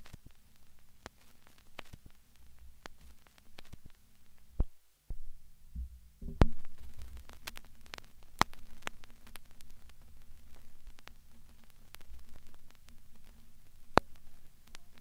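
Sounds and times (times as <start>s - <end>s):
crackling static clicks: 0.0s - 15.0s
steady low hum: 0.0s - 15.0s
deep thuds: 4.6s - 7.3s.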